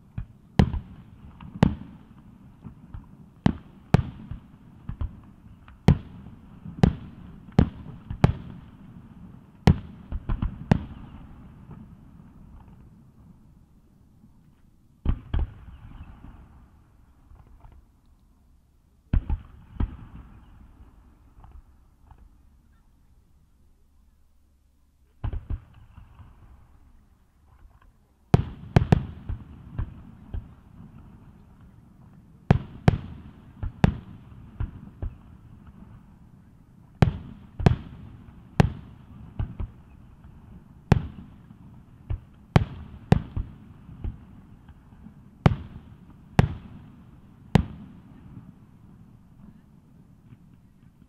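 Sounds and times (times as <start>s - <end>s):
fireworks booming: 0.1s - 13.4s, 19.1s - 22.3s, 28.3s - 51.0s.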